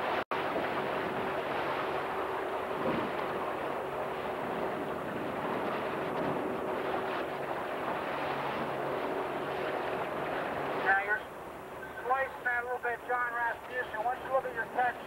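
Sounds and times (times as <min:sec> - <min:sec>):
wind on microphone: 0:00.0 - 0:10.9
outboard motor running: 0:00.0 - 0:15.0.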